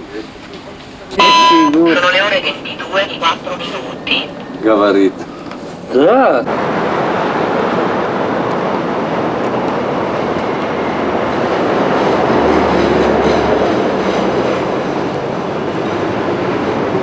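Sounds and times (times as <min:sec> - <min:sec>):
heavy city traffic passing: 0:00.0 - 0:17.0.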